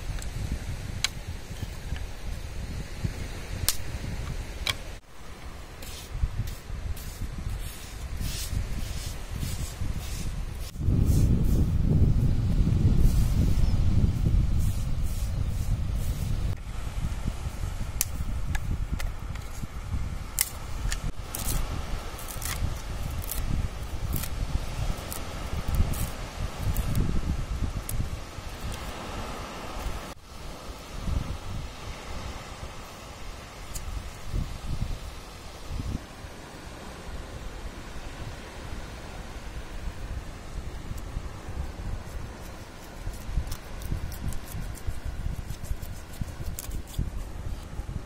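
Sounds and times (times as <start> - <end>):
wind rumbling on microphone: 0.0 - 48.0
stick scraping sand: 5.8 - 11.8, 20.4 - 27.1, 42.0 - 47.7
coconut husk rustling: 19.1 - 39.8, 40.4 - 48.0.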